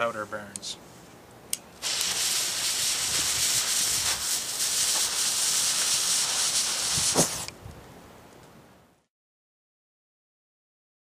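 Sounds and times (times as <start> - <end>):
fuse hissing: 1.8 - 7.5
black powder igniting with a pop: 1.8 - 7.6.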